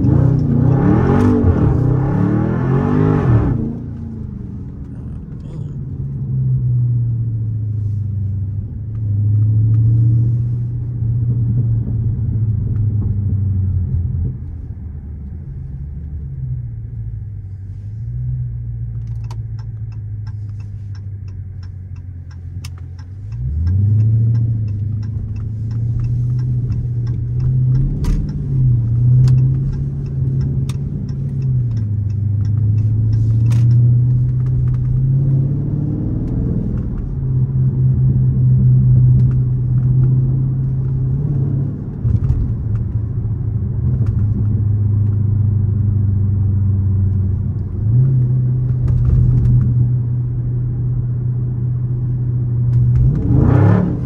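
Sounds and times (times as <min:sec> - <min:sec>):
car engine from inside cabin: 0:00.0 - 0:54.0
regular ticking: 0:19.2 - 0:35.1.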